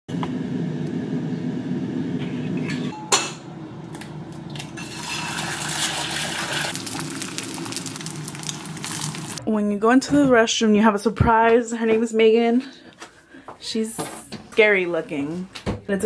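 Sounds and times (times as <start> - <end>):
steady low hum: 0.1 - 4.8.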